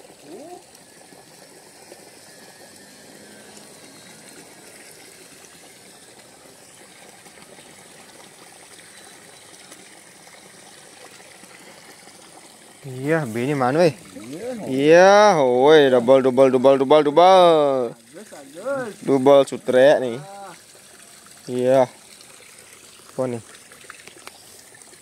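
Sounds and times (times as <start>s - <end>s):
water rushing in a ditch: 0.0s - 25.0s
faint high-pitched tone: 8.8s - 10.7s.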